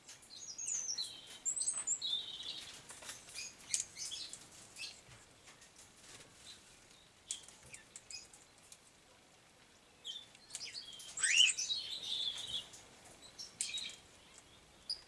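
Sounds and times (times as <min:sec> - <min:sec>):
parrots chirping: 0:11.1 - 0:12.6.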